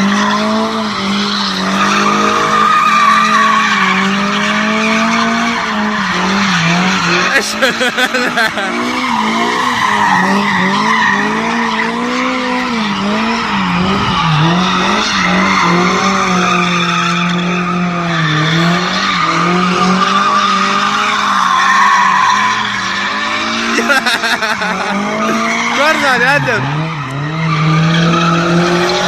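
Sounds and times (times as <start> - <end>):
car engine revving: 0.0 - 29.0
tyres squealing and skidding: 0.0 - 29.0.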